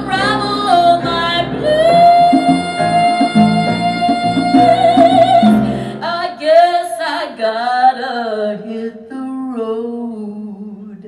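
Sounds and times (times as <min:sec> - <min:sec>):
piano and bass: 0:00.0 - 0:06.2
woman singing with vibrato: 0:00.0 - 0:11.0.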